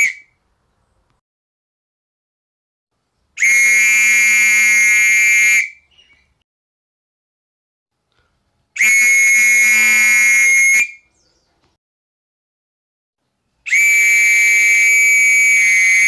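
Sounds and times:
whistle long blasts: 0.0s - 0.4s, 3.4s - 5.9s, 8.8s - 11.1s, 13.6s - 16.0s.

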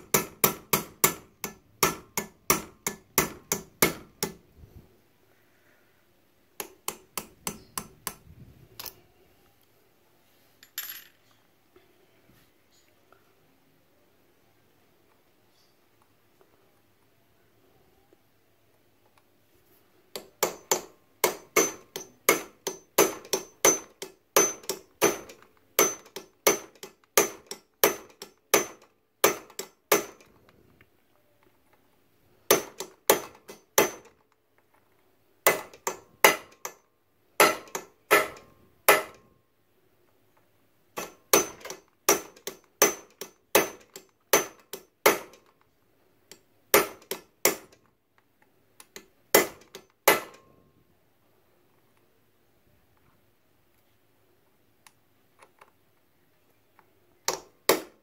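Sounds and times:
hammer striking screwdriver on metal: 0.0s - 4.4s, 6.6s - 8.2s, 20.2s - 30.3s, 32.5s - 34.2s, 37.4s - 39.3s, 41.0s - 45.5s, 46.3s - 47.8s.

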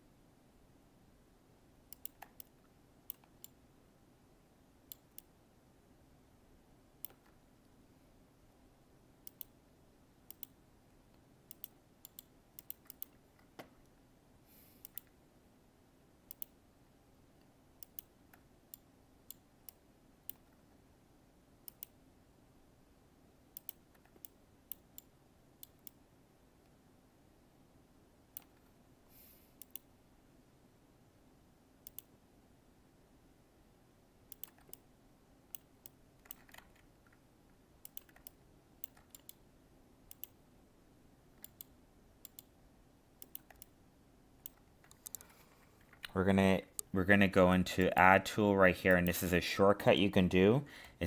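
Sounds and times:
faint steady hum: 0.0s - 51.0s
computer mouse clicks: 1.9s - 3.6s, 4.9s - 5.3s, 7.0s - 7.4s, 9.2s - 9.6s, 10.3s - 13.9s, 14.8s - 15.2s, 16.3s - 16.6s, 17.4s - 20.6s, 21.6s - 22.0s, 23.6s - 26.0s, 28.3s - 28.7s, 29.6s - 29.9s, 31.8s - 32.2s, 34.3s - 34.9s, 35.5s - 37.2s, 37.8s - 39.4s, 40.1s - 40.4s, 41.4s - 42.5s, 43.2s - 43.8s, 44.4s - 46.9s.

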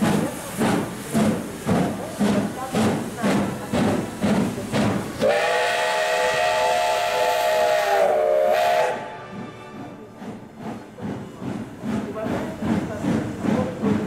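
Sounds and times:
steam hissing: 0.0s - 9.3s, 10.0s - 14.0s
steam locomotive whistle chord: 5.2s - 9.9s.

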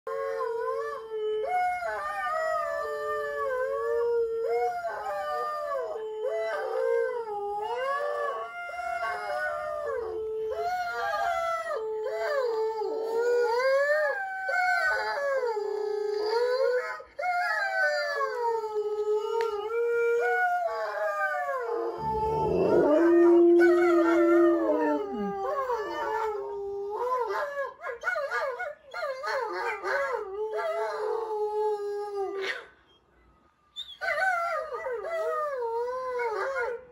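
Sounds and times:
dogs howling: 0.1s - 32.5s
low steady howl: 19.3s - 27.2s.

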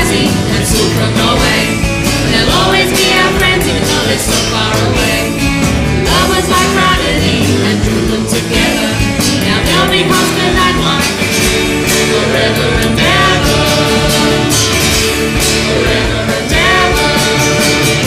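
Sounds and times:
rock song with sung vocals: 0.0s - 18.0s
steady drum beat: 0.0s - 18.0s.

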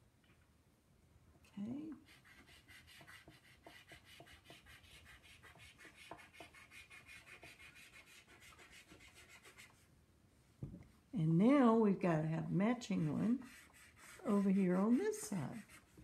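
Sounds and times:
chalk pastel scratching on paper: 1.9s - 9.9s, 12.4s - 16.0s.

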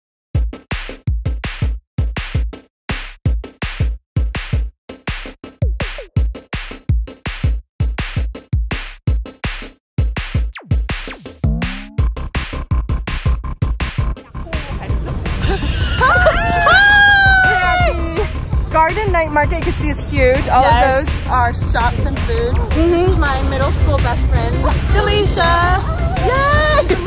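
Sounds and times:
electronic music with drum-machine beat: 3.3s - 16.1s.

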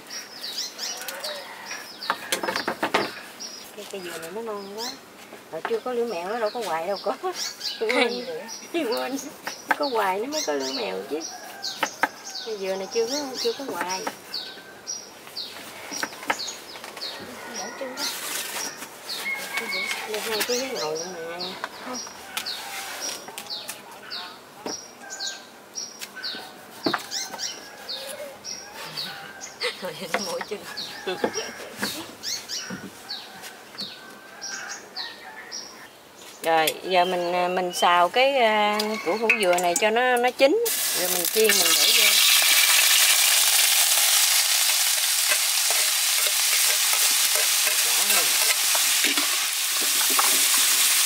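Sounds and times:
bird chirping: 5.7s - 17.8s
food sizzling in a wok: 40.6s - 51.0s
metal spatula scraping a pan: 45.2s - 51.0s.

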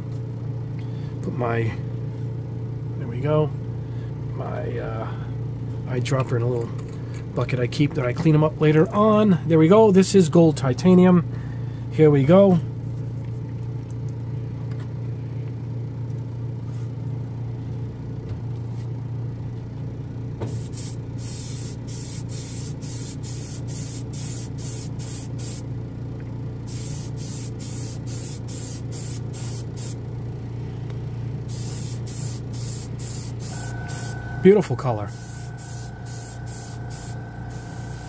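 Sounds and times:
low machine hum: 0.0s - 38.0s
airbrush hissing air pulses: 20.5s - 25.6s, 26.7s - 30.0s, 31.5s - 38.0s.

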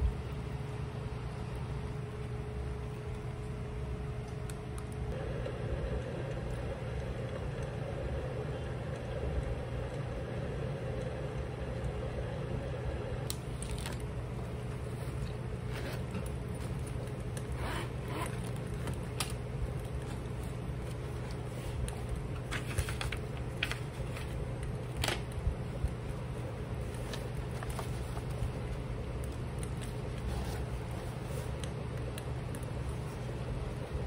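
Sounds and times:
low hum: 0.0s - 34.0s
book pages riffled and turned: 13.3s - 34.0s.

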